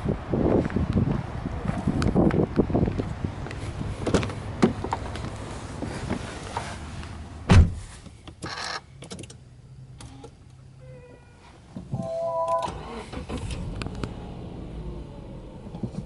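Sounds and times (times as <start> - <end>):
car door shutting thump: 7.5 - 7.9
car door clicks and rustling: 7.5 - 9.4.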